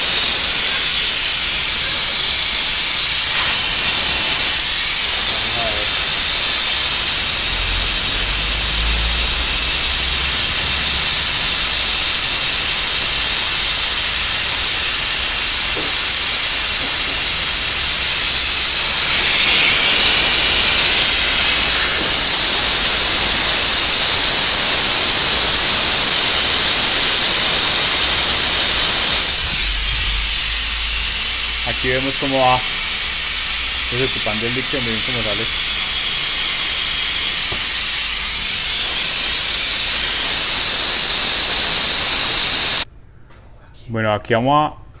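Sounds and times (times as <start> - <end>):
compressed air hissing: 0.0 - 42.9.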